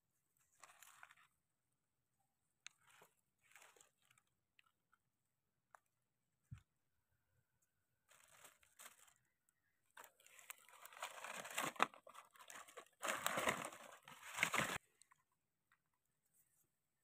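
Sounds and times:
dry leaves crunching and rustling: 0.6 - 1.3, 2.9 - 4.2, 8.1 - 9.2, 10.0 - 14.8.

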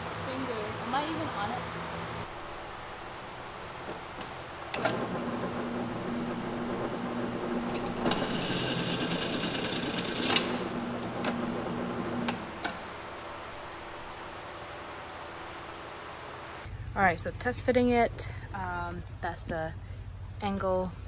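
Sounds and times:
drill press motor hum: 3.8 - 14.4
drill bit cutting steel: 5.9 - 11.5.

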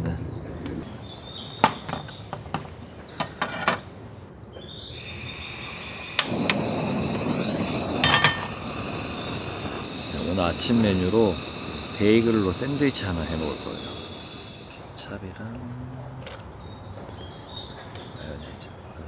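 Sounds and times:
steady hiss: 4.8 - 15.6
high insect drone: 4.9 - 15.2.

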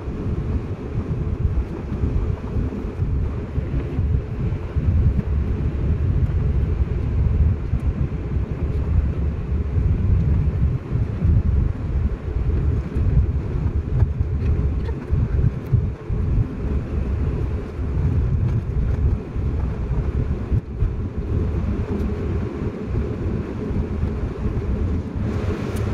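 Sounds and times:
vehicle engine and tyre rumble: 0.0 - 25.9.

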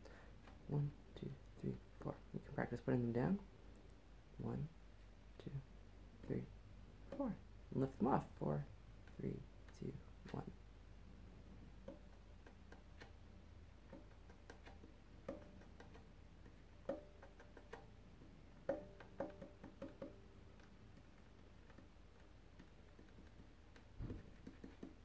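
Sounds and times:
fingertips tapping violin body: 11.8 - 25.0.

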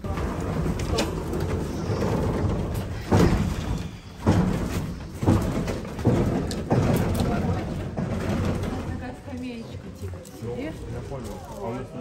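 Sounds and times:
heavy thuds: 0.0 - 9.3
cable car cabin clanking: 0.0 - 9.6.

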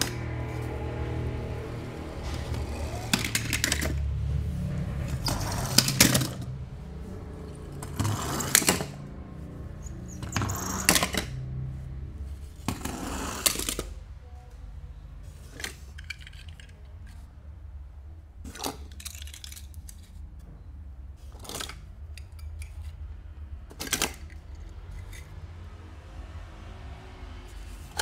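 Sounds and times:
toy cars clinking: 0.0 - 14.5, 15.2 - 17.6, 18.4 - 20.4, 21.2 - 26.3
packaging crackling and rustling: 18.5 - 20.3.

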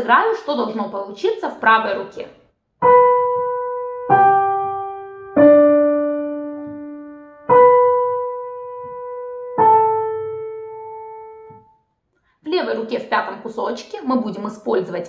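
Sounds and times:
slow piano notes: 2.8 - 11.9.

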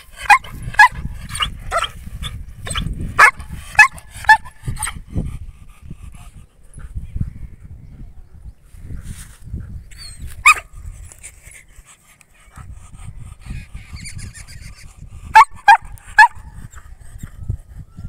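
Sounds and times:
dog barking: 3.2 - 4.5.

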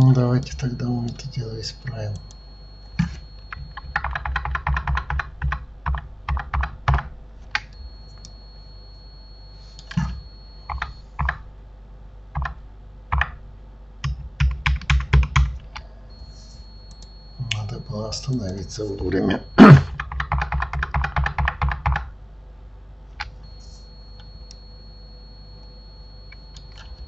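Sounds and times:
computer keyboard keystrokes: 3.0 - 8.4, 9.8 - 11.4, 12.3 - 13.4, 14.0 - 15.8, 19.9 - 22.1.

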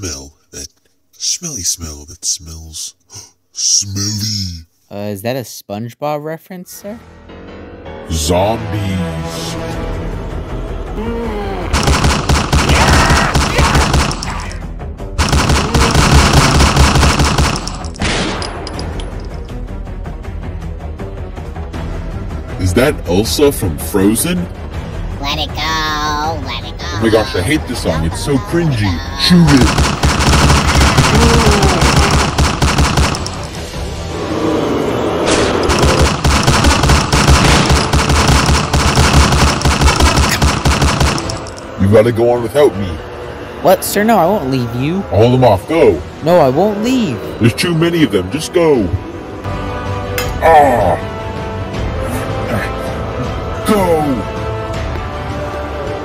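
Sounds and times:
background music: 2.4 - 56.0
automatic gunfire bursts: 11.8 - 14.3, 15.2 - 17.9, 29.5 - 33.6, 35.7 - 41.6.

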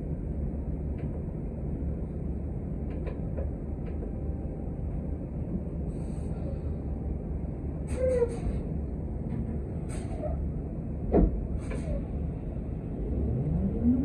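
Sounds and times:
bus engine and road rumble: 0.0 - 14.0
brief squeak: 7.9 - 8.6.

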